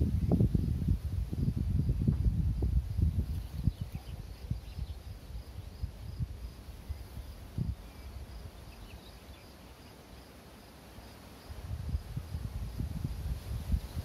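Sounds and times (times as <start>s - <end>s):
wind buffeting microphone: 0.0s - 9.0s, 11.4s - 14.0s
insect chirping: 0.0s - 14.0s
faint bird chirps: 3.2s - 6.1s, 6.8s - 10.3s.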